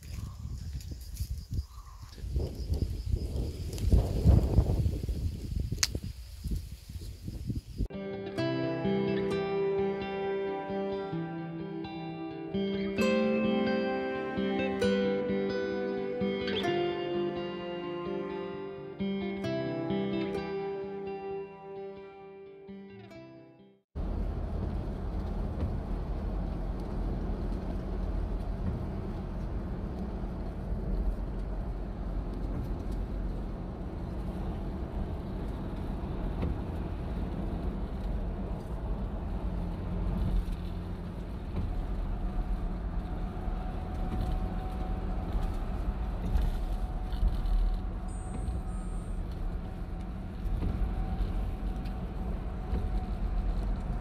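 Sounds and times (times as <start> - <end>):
tyre and road noise: 0.0 - 7.9, 24.0 - 54.0
car engine hum: 24.0 - 54.0.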